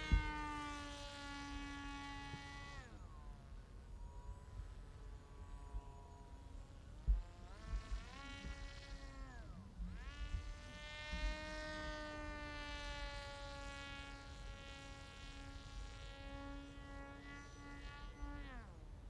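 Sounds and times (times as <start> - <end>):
model aircraft motor buzzing whine: 0.0 - 19.0.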